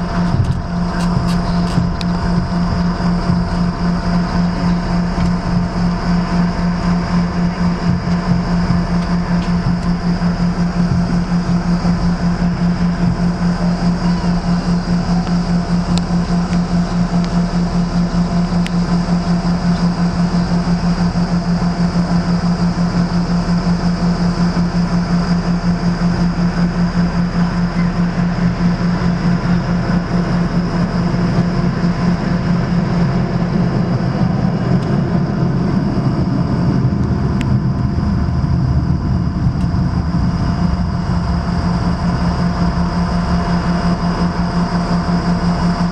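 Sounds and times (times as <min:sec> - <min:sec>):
wheels rumbling: 0:00.0 - 0:22.9, 0:27.4 - 0:45.9
faint high whine: 0:00.0 - 0:45.9
jet engines humming: 0:00.0 - 0:45.9.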